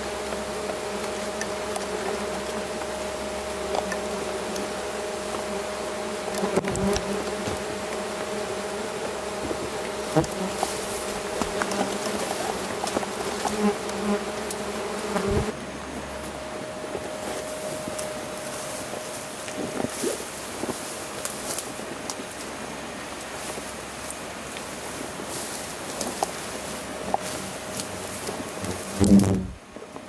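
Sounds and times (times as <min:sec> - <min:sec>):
wasps buzzing: 0:00.0 - 0:15.5, 0:25.9 - 0:29.6.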